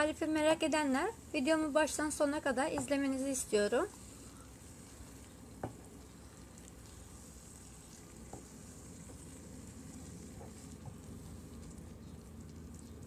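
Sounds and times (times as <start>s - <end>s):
apples sizzling in a frying pan: 0.0s - 13.0s
wooden spoon scraping a pan: 7.2s - 11.6s.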